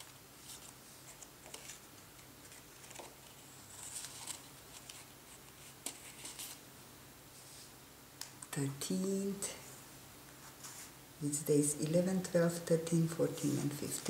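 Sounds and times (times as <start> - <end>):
paper and card rustling: 0.0 - 6.6, 13.3 - 14.0.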